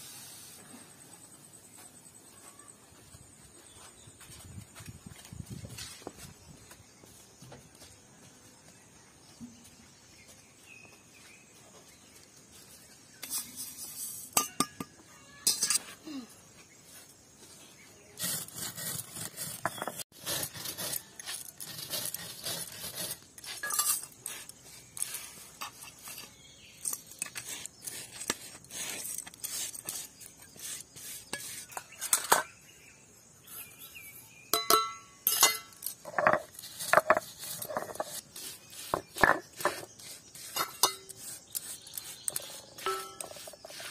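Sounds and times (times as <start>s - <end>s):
steel plate clinking: 14.4s - 15.8s, 23.5s - 24.2s, 34.5s - 38.0s, 40.5s - 41.3s, 42.3s - 43.6s
stone roller grinding seeds: 18.1s - 32.6s, 35.2s - 43.9s.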